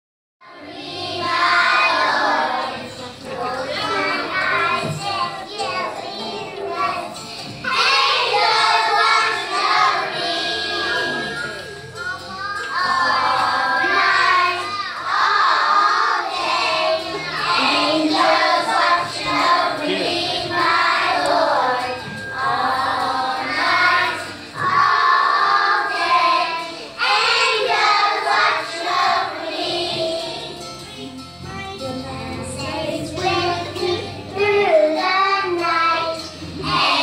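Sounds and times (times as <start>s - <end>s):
children singing: 0.4s - 37.0s.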